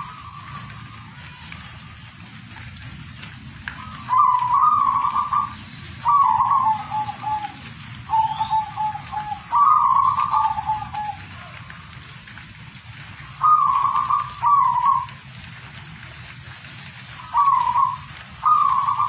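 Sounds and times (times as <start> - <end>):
dove cooing: 3.7 - 11.9, 13.1 - 15.6, 17.0 - 19.0.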